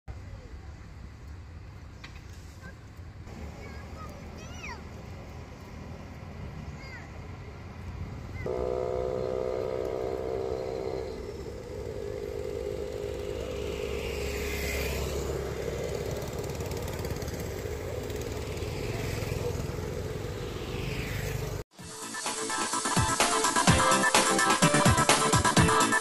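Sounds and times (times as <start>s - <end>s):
motorbike engine hum: 3.3s - 21.6s
vehicle passing by: 3.3s - 21.6s.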